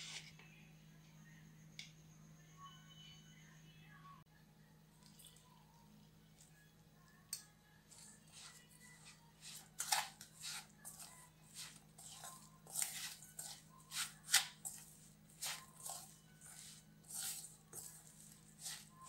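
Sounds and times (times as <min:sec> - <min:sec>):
faint steady hum: 0:00.0 - 0:19.0
spoon scraping steel bowl: 0:07.9 - 0:19.0.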